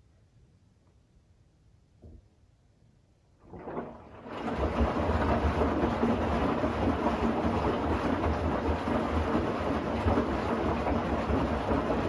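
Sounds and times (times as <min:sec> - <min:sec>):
washing machine drum churning: 0:03.4 - 0:12.0.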